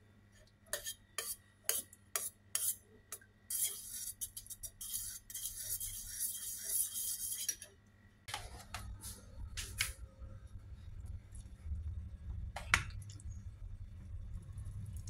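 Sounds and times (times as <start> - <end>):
metal spoon scraping bowl: 0.7 - 7.7
low hum: 8.3 - 15.0.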